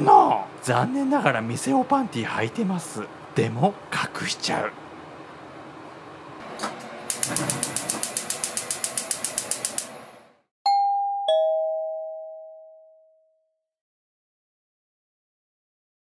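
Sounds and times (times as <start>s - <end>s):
gas stove igniter clicking: 7.1s - 10.0s
two-note ding-dong chime: 10.7s - 13.4s.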